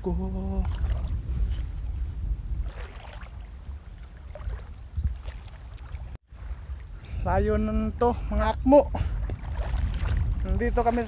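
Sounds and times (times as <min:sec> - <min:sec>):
wind buffeting microphone: 0:00.0 - 0:11.0
sea water sloshing around legs: 0:02.6 - 0:06.2, 0:09.2 - 0:10.4.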